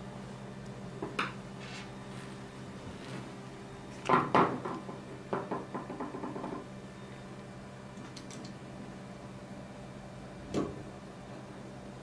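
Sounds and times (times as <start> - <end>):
sharp knocks on wooden table: 4.1 - 6.6
metal parts clicking and tapping: 8.0 - 8.6.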